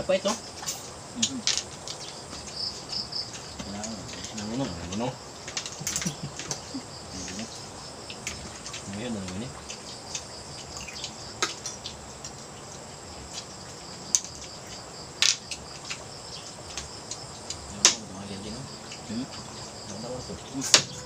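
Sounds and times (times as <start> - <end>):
insects trilling: 0.0 - 21.0
faint voice: 1.2 - 1.5, 7.1 - 7.5.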